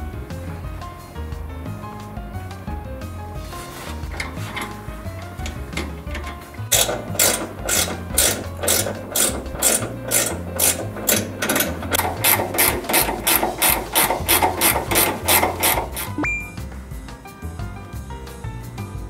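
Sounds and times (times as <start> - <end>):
ratchet wrench clicking: 4.1 - 16.2.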